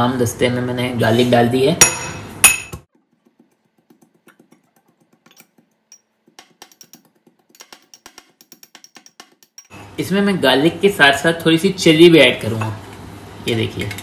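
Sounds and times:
metal pestle clink: 1.8 - 2.8, 5.2 - 9.8
pestle tapping in metal mortar: 1.8 - 9.7.

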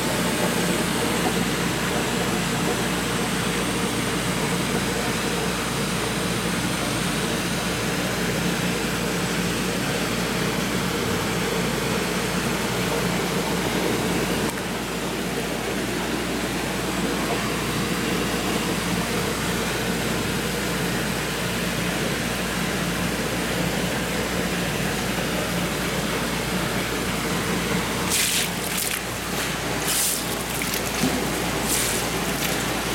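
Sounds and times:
tank circulation hum: 0.0 - 32.9
running water: 28.1 - 32.9
water splashing: 28.1 - 32.9.

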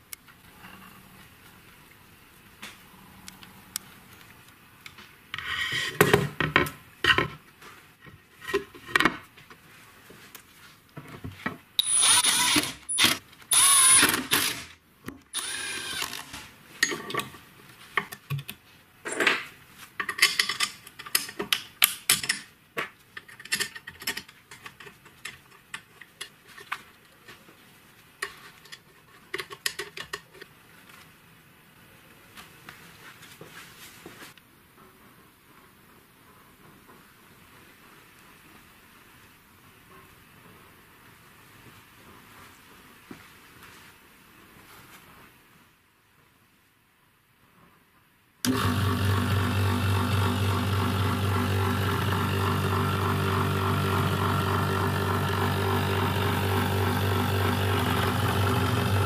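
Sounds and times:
power tool bursts: 11.8 - 14.7, 15.4 - 16.4, 48.5 - 59.0.

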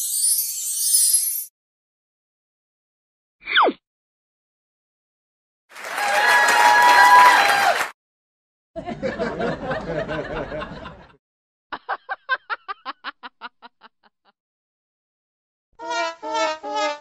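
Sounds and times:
people laughing: 8.8 - 11.2, 11.8 - 14.2
single person laughing ha ha: 9.1 - 14.3.

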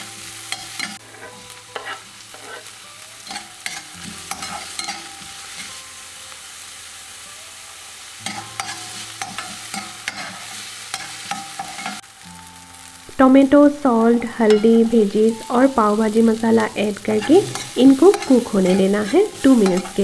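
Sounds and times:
vegetables sizzling in oil: 0.0 - 20.0
spatula scraping a pan: 0.5 - 5.8, 8.2 - 12.0, 17.0 - 20.0.

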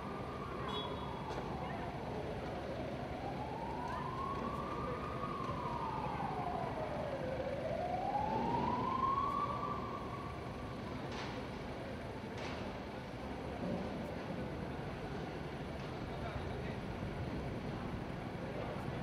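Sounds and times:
emergency siren wailing: 0.0 - 11.1.

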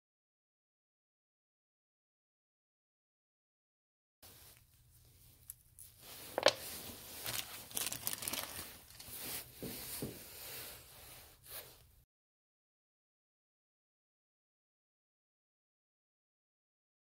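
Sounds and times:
plastic bag and paper crinkling: 5.9 - 9.5.

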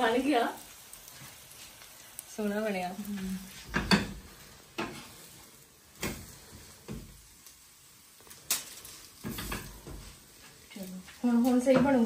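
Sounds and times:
spatula scraping on griddle: 3.1 - 7.2, 8.2 - 12.0.

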